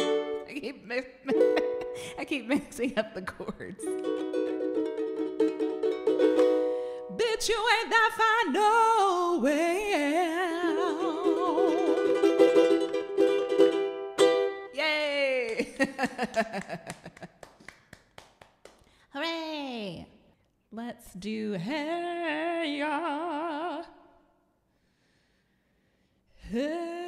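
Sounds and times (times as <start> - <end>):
ukulele strumming chords: 0.0 - 0.5, 1.3 - 2.2, 3.8 - 7.2, 10.0 - 14.8
woman singing with vibrato: 7.1 - 12.4, 21.1 - 24.2, 26.4 - 27.0.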